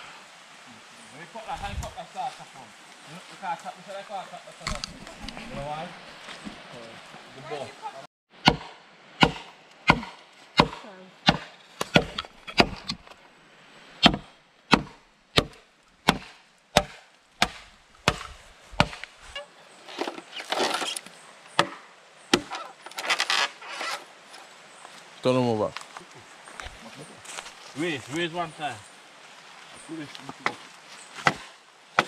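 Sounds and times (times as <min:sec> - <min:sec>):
blade chopping bamboo: 0:08.4 - 0:13.0, 0:14.0 - 0:19.1, 0:21.6 - 0:23.5, 0:31.2 - 0:32.0
rustling: 0:17.2 - 0:21.6, 0:22.3 - 0:25.1.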